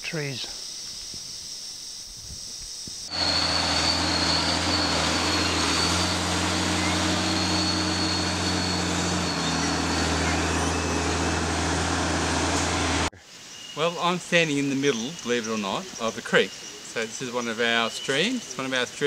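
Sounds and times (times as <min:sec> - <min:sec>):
high whine: 0:01.0 - 0:17.1
large engine droning: 0:03.1 - 0:13.1.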